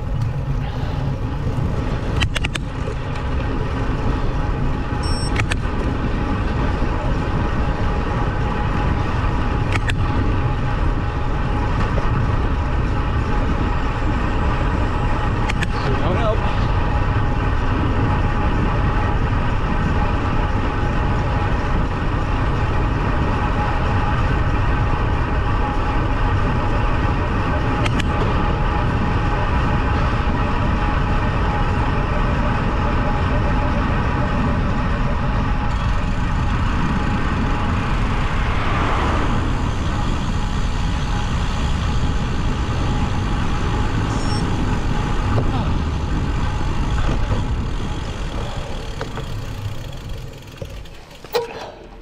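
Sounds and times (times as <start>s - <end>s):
bike tyres on tarmac: 0.0s - 52.0s
wind rushing over microphone: 33.8s - 49.6s.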